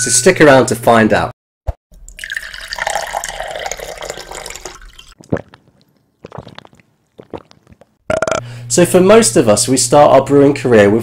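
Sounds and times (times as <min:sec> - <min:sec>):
liquid dripping: 0:01.9 - 0:08.0
liquid pouring: 0:01.9 - 0:08.0.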